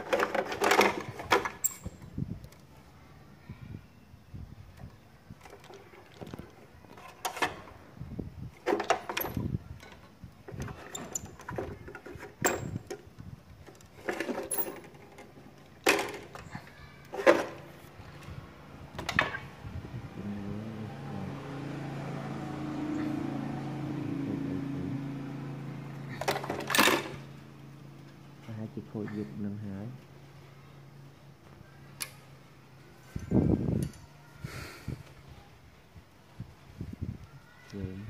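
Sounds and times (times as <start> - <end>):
steady low hum: 17.8 - 36.1.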